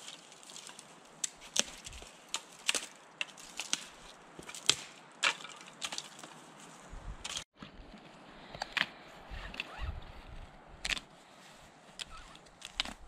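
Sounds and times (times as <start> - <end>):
dry sticks cracking: 0.0 - 7.4, 10.8 - 11.1, 11.9 - 13.0.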